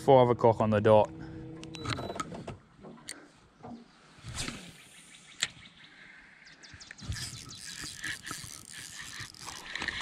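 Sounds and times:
fishing reel ticking: 6.9s - 10.0s.

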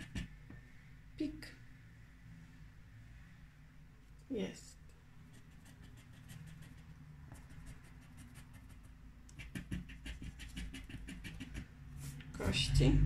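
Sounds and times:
scratch card being scraped: 5.4s - 12.2s.

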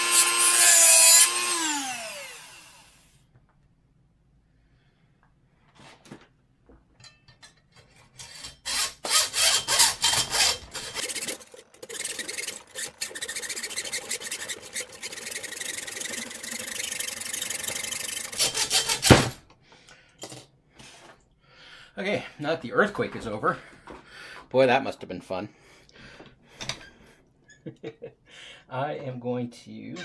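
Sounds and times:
hacksaw cutting steel: 0.0s - 3.0s, 7.9s - 19.4s.

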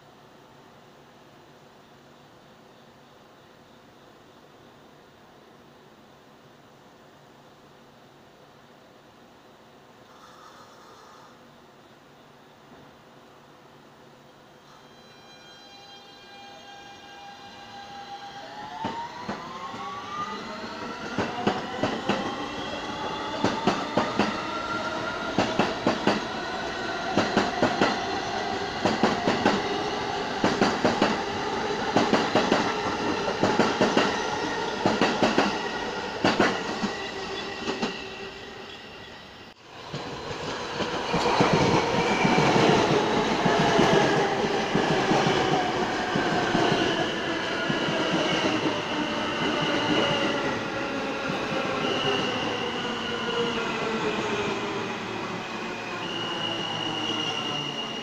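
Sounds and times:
subway train slowing: 0.0s - 58.0s
subway train motors whining: 12.7s - 58.0s.

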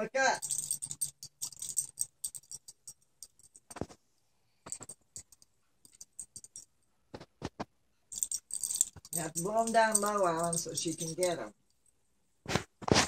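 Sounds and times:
faint metallic jingling: 0.0s - 3.8s, 4.6s - 7.0s, 8.1s - 12.0s.

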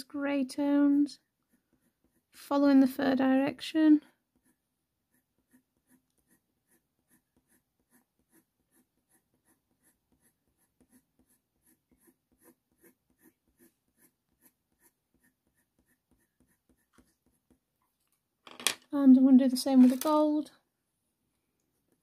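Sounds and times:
coloured pencil scratching on paper: 0.3s - 17.7s.

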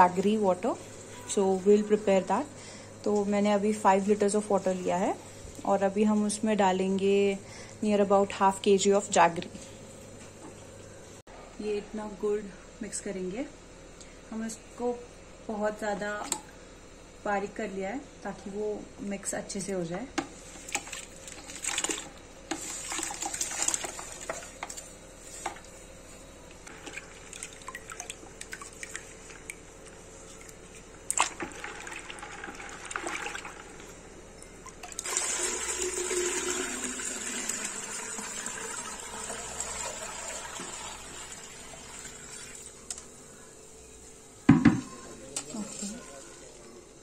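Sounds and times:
hand stirring and splashing water: 20.6s - 24.9s, 26.7s - 33.9s
water pouring through a strainer: 34.8s - 42.7s.

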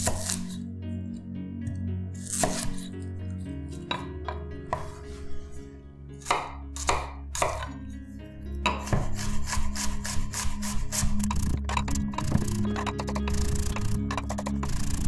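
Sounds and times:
knife chopping on wooden board: 2.3s - 2.9s, 3.9s - 5.0s, 6.2s - 7.8s, 8.7s - 14.8s.

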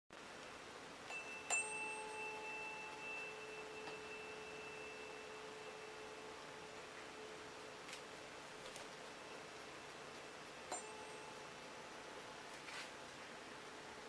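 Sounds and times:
tuning fork struck: 1.0s - 7.6s, 10.7s - 11.6s
tuning fork ringing tone: 1.0s - 7.8s, 10.7s - 12.0s.

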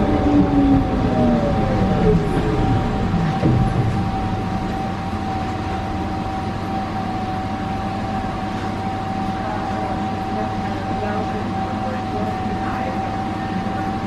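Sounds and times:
tram wheels rumbling: 0.0s - 14.0s.

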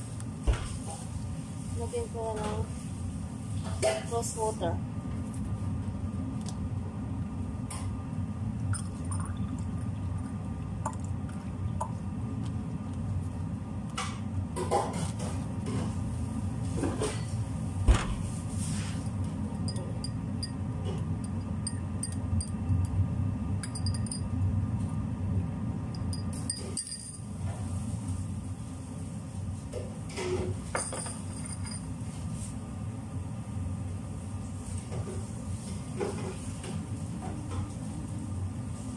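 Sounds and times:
low kitchen hum: 0.0s - 38.9s
glass and dishes clinking: 19.6s - 22.6s, 23.6s - 24.3s, 26.0s - 27.2s, 30.7s - 31.9s.

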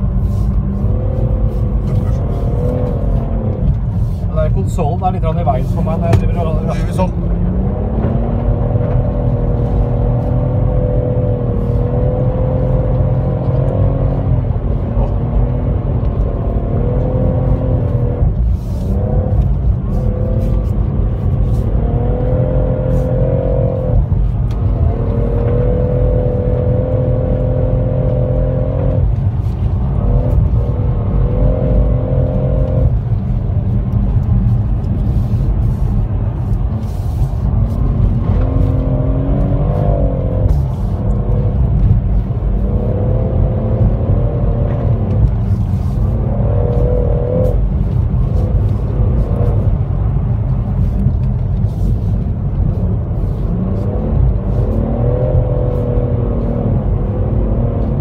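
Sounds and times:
car engine at high revs: 0.0s - 58.0s.

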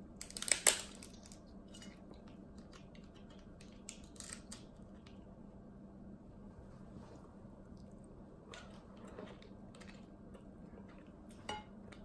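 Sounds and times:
crab shell cracking: 0.2s - 1.4s, 2.7s - 4.7s.

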